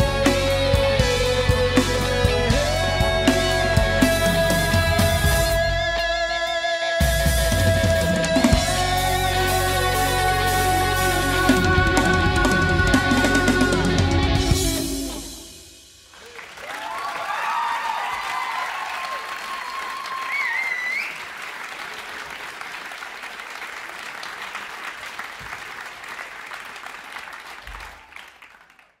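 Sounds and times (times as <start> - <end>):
audience cheering: 2.1 - 6.1, 16.0 - 29.0
audience applause: 16.0 - 29.0.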